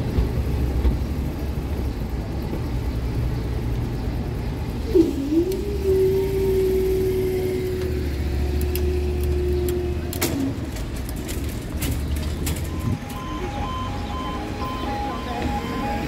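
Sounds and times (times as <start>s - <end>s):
level crossing two-tone alarm: 12.7s - 16.0s.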